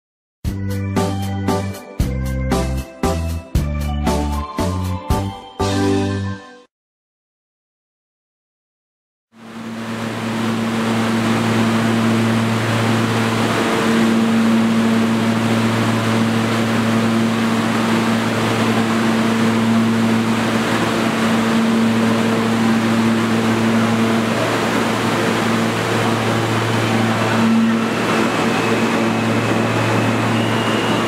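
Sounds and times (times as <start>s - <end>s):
station noise hiss: 9.4s - 31.0s
train hum with fixed tones: 9.4s - 31.0s.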